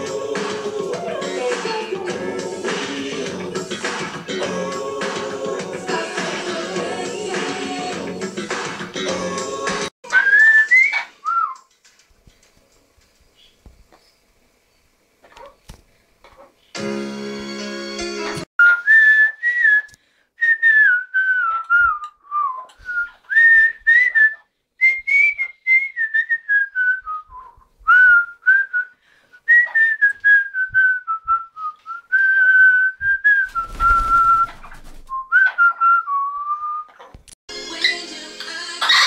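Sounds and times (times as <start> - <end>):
parrot whistling a tune: 10.1 - 11.6.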